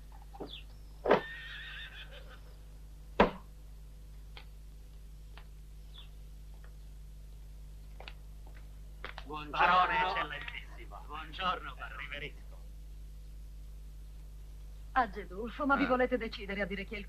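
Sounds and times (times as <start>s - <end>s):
horse whinnying: 1.1s - 2.4s
loud sharp knock: 3.2s - 3.5s
sharp thump: 3.2s - 3.5s
faint scattered clicks: 4.2s - 6.8s, 10.3s - 10.7s.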